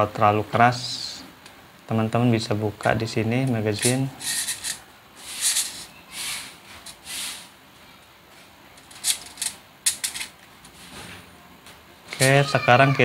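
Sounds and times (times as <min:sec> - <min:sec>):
soft rubbing sliding sounds: 0:03.8 - 0:07.6.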